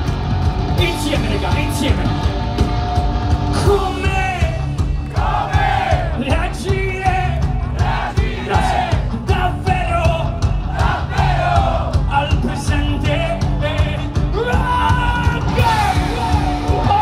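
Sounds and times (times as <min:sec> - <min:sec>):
electric guitars: 0:00.0 - 0:05.3
drums: 0:00.0 - 0:17.0.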